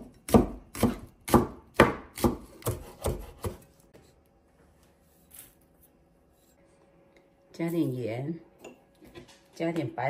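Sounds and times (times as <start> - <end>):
cleaver chopping on wooden board: 0.0 - 3.6.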